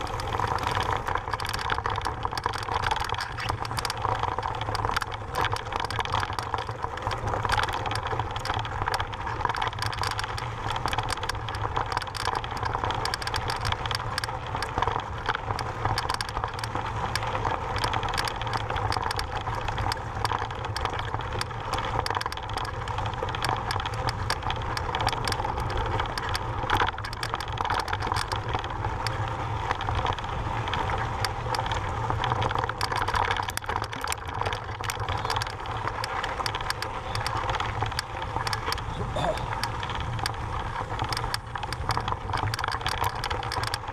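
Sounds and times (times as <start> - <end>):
bike rattling: 0.0 - 43.9.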